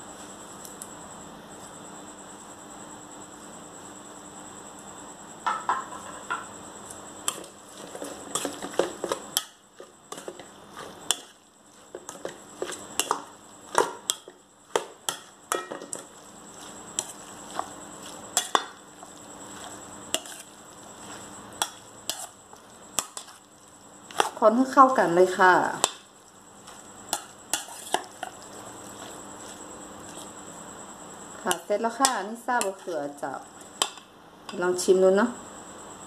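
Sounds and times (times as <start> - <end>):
metal spoon scraping metal bowl: 19.5 - 22.4, 26.7 - 30.3.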